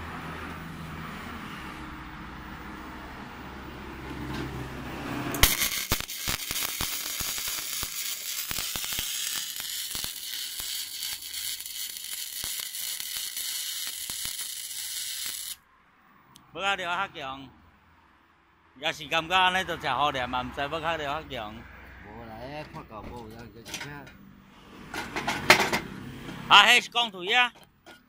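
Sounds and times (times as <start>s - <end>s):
welding arc crackling: 5.3s - 15.6s.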